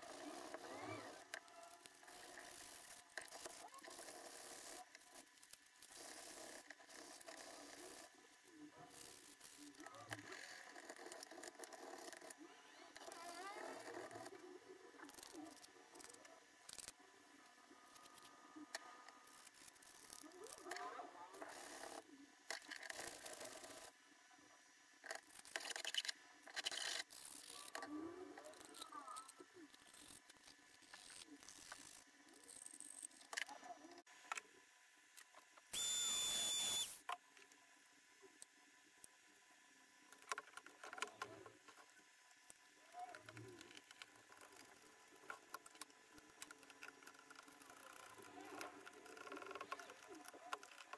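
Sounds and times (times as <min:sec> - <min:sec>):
disc grinder grinding: 0:35.8 - 0:37.0.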